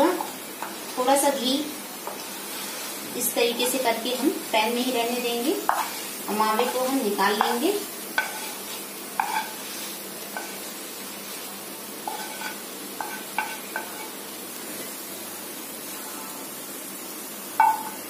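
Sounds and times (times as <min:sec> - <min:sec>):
faint steady hiss: 0:00.0 - 0:18.0
spatula scraping metal pan: 0:08.2 - 0:09.6, 0:12.1 - 0:14.1.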